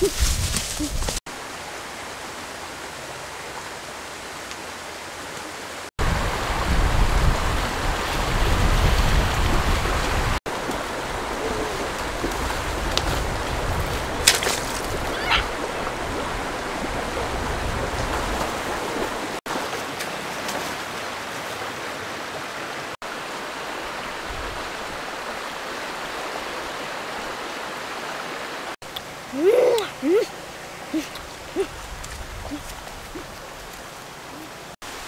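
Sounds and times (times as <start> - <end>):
river rushing over rocks: 1.3 - 35.0
sharp splashes: 10.4 - 16.3.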